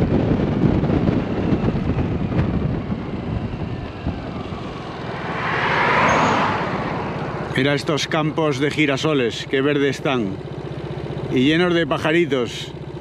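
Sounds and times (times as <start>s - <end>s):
wind buffeting microphone: 0.0s - 8.2s.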